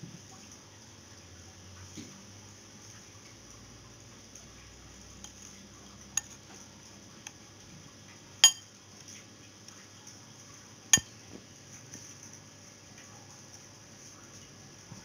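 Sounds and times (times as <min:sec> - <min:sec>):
spoon clinking on ceramic plate: 0:08.4 - 0:08.6.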